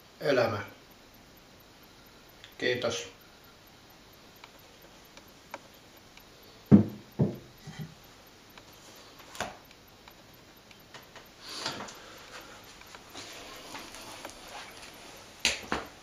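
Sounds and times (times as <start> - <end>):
wooden plane dull thumps: 6.7 - 7.9.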